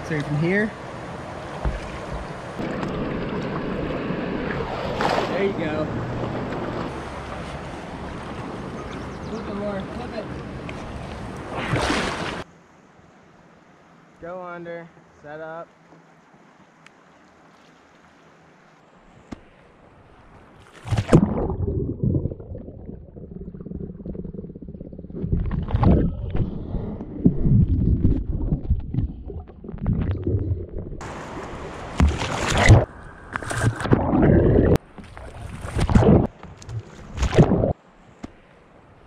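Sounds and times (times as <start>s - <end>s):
kayak splash: 1.1s - 9.0s, 10.4s - 12.5s, 16.2s - 22.9s, 27.4s - 37.7s
loud surges of splashing: 10.9s - 12.4s
underwater churning and gurgling: 20.8s - 37.8s.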